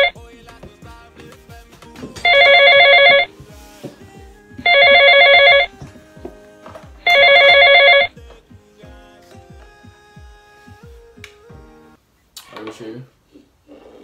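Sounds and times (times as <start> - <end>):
telephone electronic trilling ring: 2.2 - 3.3, 4.6 - 5.7, 7.0 - 8.1.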